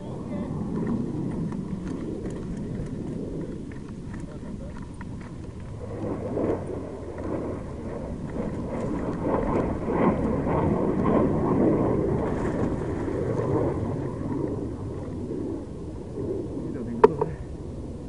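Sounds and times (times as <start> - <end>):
wind buffeting microphone: 0.0 - 18.0
bike rattling on gravel trail: 0.8 - 11.2.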